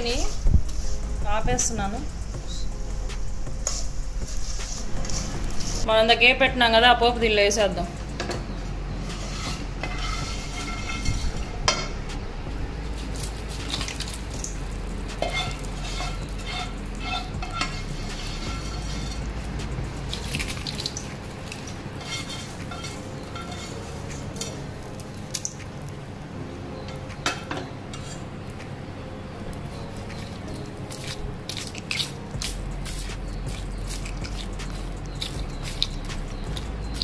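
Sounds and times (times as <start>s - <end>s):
spatula stirring rice in metal bowl: 9.0s - 11.3s, 13.2s - 19.2s, 20.0s - 24.6s, 30.1s - 37.0s
ladle scraping and tapping bowl: 9.1s - 11.9s, 15.2s - 19.2s.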